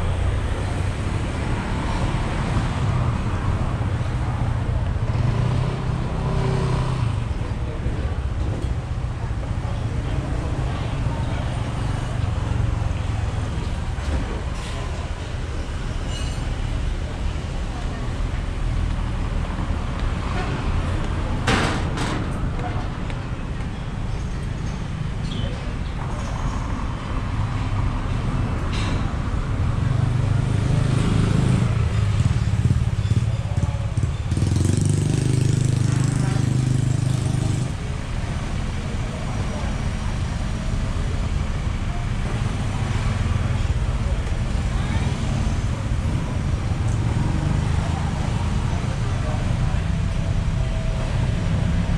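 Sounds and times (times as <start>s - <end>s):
low rumble of motor traffic: 0.0s - 51.9s
short high squeak: 16.0s - 16.7s
motorbike engine rumbling: 29.0s - 51.9s
motorbike engine: 30.3s - 38.5s.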